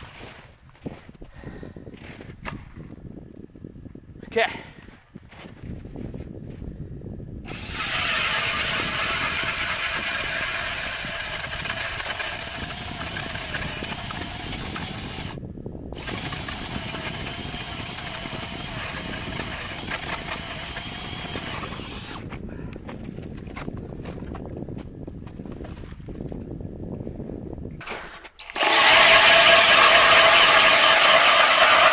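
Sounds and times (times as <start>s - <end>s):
cordless drill motor whine: 7.5s - 15.4s, 16.0s - 22.3s, 28.4s - 31.9s.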